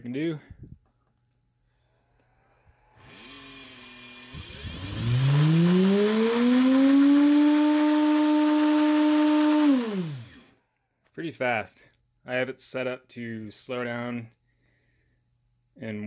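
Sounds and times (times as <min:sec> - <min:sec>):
electric motor whine: 0:02.9 - 0:10.5.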